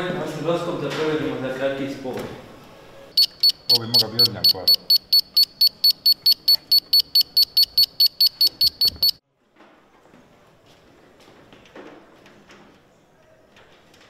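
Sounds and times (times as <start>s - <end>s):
rapid high-pitched electronic beeping: 3.2s - 9.2s.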